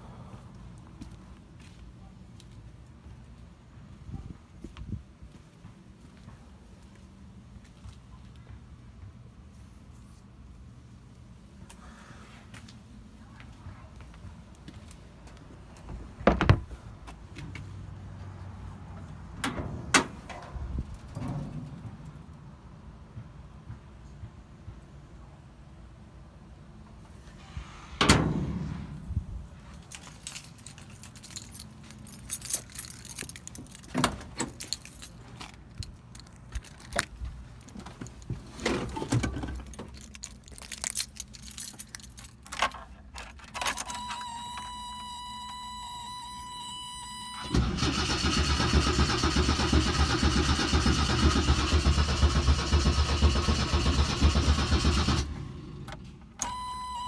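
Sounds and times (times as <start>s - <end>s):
keys jangling and clicking: 29.7s - 38.3s, 39.0s - 44.8s
steady high warning tone: 43.7s - 47.7s, 56.4s - 57.0s
starter cranking engine: 47.5s - 55.8s.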